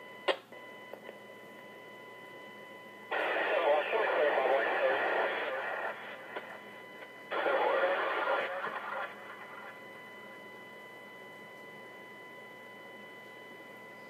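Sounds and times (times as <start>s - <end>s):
faint steady whine: 0.0s - 14.0s
two-way radio transmission: 3.1s - 10.1s.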